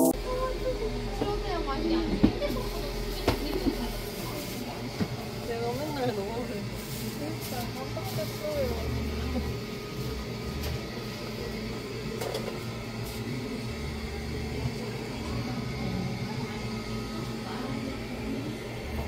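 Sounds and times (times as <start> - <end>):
machine humming: 0.0 - 19.0.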